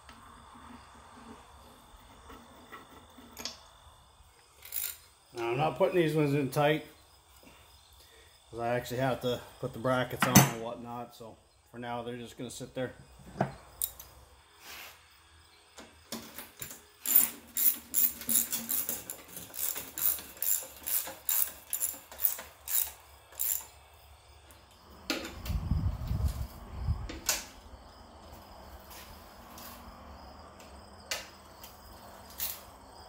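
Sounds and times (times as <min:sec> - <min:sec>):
socket ratchet clicking: 0:17.0 - 0:23.7.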